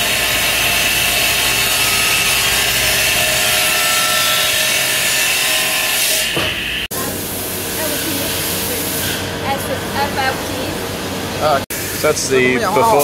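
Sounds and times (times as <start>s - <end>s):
metal-cutting saw cutting aluminium: 0.0s - 6.9s, 7.6s - 9.5s.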